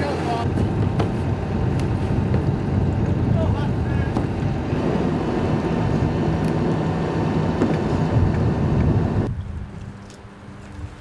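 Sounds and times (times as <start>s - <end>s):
excavator engine rumbling: 0.0s - 9.6s.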